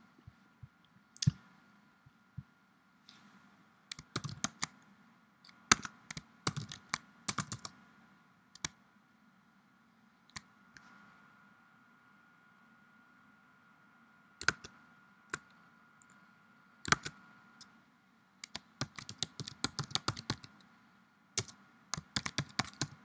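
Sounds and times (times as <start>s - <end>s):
computer keyboard typing: 3.9s - 4.7s, 5.5s - 7.7s, 14.4s - 14.7s, 16.8s - 17.2s, 18.4s - 20.6s, 21.4s - 23.0s.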